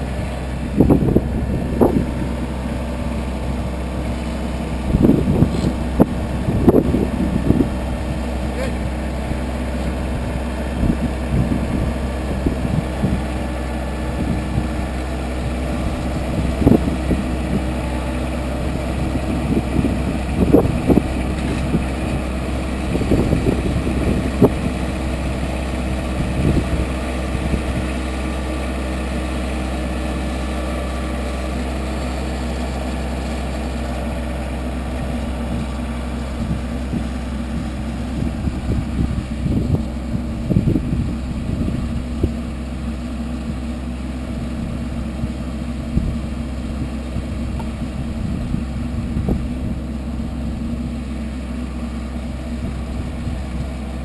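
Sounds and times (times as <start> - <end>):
tractor engine running: 0.0 - 54.0
loader bucket knocking and scraping: 0.6 - 8.5, 15.4 - 28.0.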